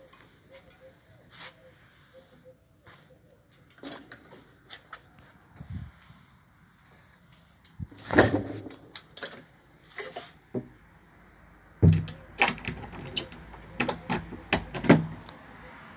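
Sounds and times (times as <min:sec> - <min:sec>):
door banging: 0:11.8 - 0:13.2
clicks and rattles: 0:11.8 - 0:15.4.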